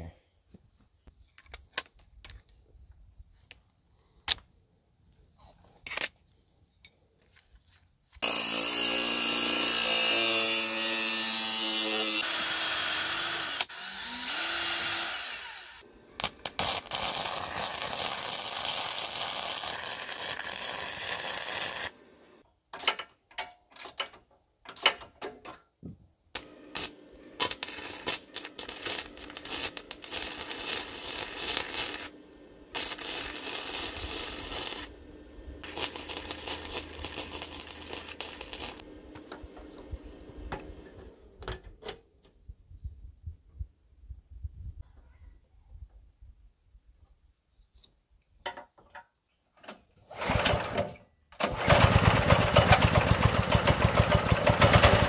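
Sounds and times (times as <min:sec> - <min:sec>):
cordless drill boring through steel: 0:08.2 - 0:15.8
welder crackling: 0:08.2 - 0:22.4, 0:26.3 - 0:39.5.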